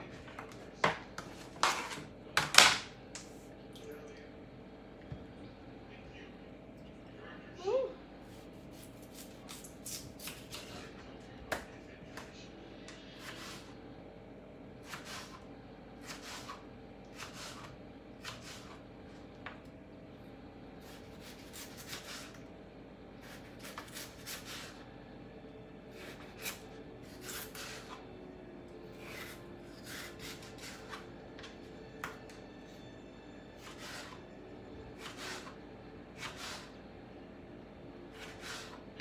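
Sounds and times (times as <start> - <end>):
low steady hum: 0.0 - 39.0
knife slicing potatoes on board: 8.3 - 10.8, 13.2 - 13.7, 14.8 - 15.4, 16.0 - 18.8, 20.8 - 22.4, 23.2 - 24.8, 25.9 - 28.0, 28.9 - 31.1, 33.6 - 34.2, 34.9 - 36.8, 38.1 - 38.9.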